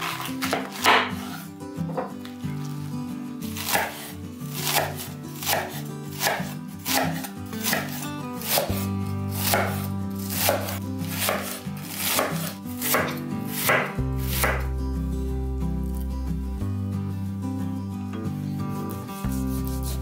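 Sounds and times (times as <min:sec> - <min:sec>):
knife cutting cabbage on wooden board: 0:00.0 - 0:02.9, 0:03.5 - 0:14.7, 0:18.9 - 0:20.0
background music: 0:00.0 - 0:20.0.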